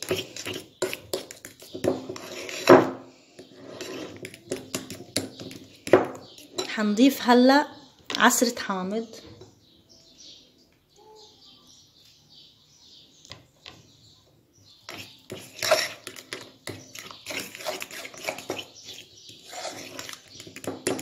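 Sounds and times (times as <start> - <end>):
spoon scraping and clinking bowl: 0.0 - 6.8, 14.9 - 21.0.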